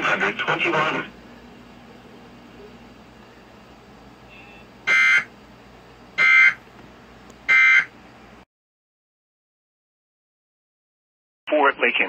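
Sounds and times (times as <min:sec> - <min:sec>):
loud buzzing digital tone bursts: 0:04.3 - 0:05.3, 0:06.2 - 0:06.6, 0:07.5 - 0:07.9.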